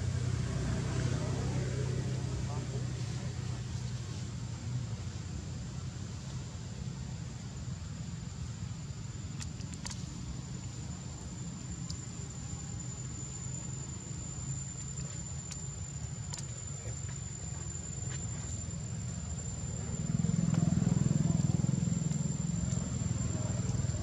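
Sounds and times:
insect drone: 0:00.0 - 0:24.0
low rumbling background: 0:00.0 - 0:24.0
faint clicks: 0:09.3 - 0:10.8, 0:14.8 - 0:17.2.

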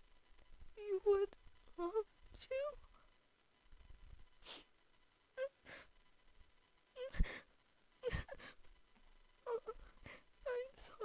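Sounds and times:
man sobbing: 0:08.0 - 0:08.6.

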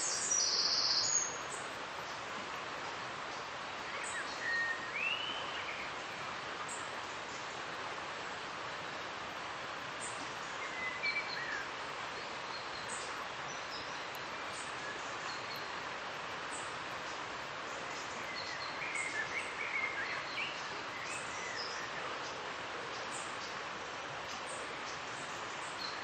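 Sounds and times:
small birds chirping: 0:00.0 - 0:02.2
river rushing: 0:00.0 - 0:26.0.

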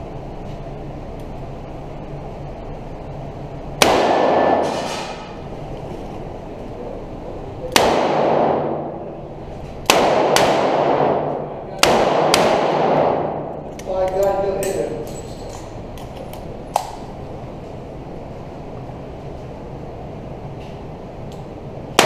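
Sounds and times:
steady low hum: 0:00.0 - 0:22.0
revolver shots echoing: 0:03.8 - 0:05.4, 0:09.8 - 0:13.7.

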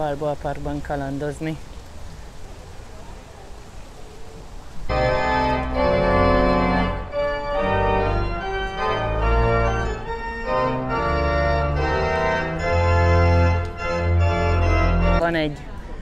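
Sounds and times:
pipe organ chords: 0:04.9 - 0:15.2.

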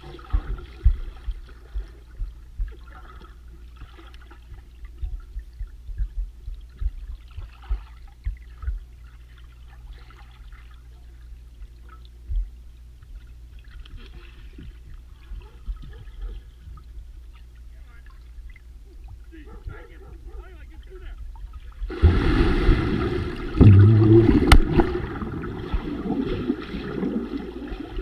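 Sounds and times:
low underwater thuds: 0:00.0 - 0:09.1, 0:11.6 - 0:13.2, 0:21.2 - 0:28.0
underwater bubbles gurgling: 0:21.3 - 0:28.0.

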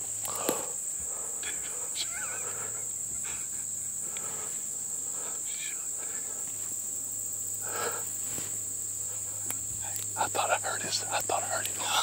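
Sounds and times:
insects buzzing: 0:00.0 - 0:12.0
faint whispering: 0:00.3 - 0:02.8, 0:04.2 - 0:06.6, 0:09.1 - 0:12.0.

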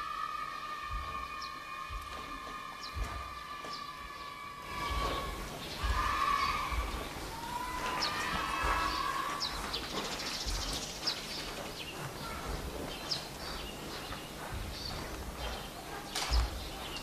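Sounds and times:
hall ambience: 0:00.0 - 0:17.0
high bird chirps: 0:04.7 - 0:15.7.

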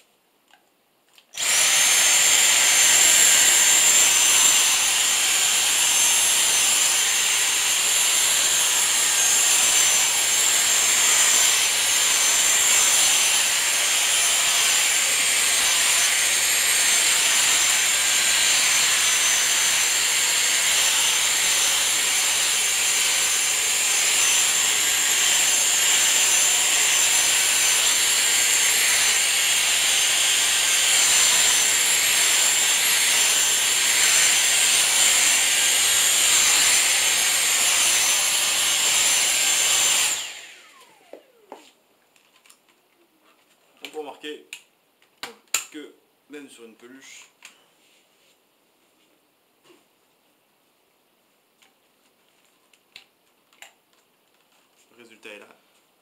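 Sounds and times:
handheld vacuum cleaner running: 0:01.4 - 0:41.7.

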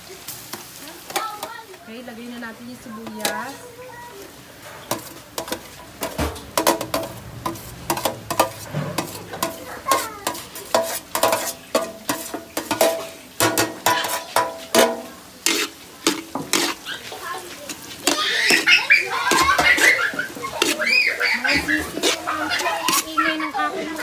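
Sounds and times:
garlic sizzling in oil: 0:00.0 - 0:24.0
metal spoon scraping metal tray: 0:04.8 - 0:16.9, 0:17.7 - 0:18.7, 0:19.3 - 0:20.8, 0:21.5 - 0:23.4.

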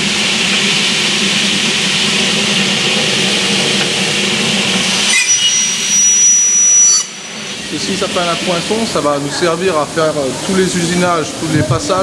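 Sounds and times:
machinery whirring hiss: 0:00.0 - 0:12.0
thin high whistling tones: 0:04.9 - 0:09.2.

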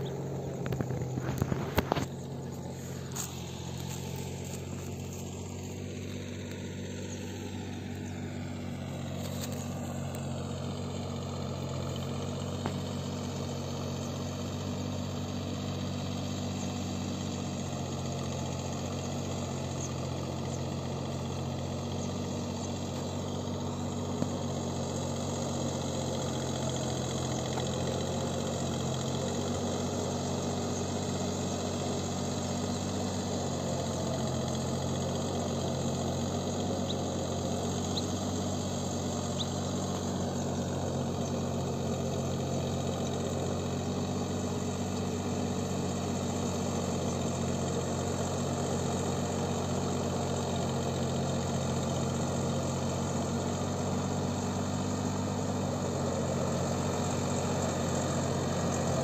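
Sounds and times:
tractor engine running: 0:00.0 - 0:59.0.

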